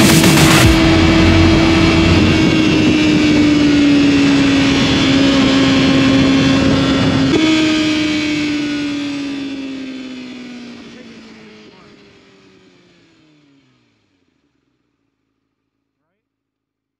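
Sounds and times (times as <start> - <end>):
rushing noise: 0.0 - 7.8
motorcycle engine at high revs: 0.0 - 14.8.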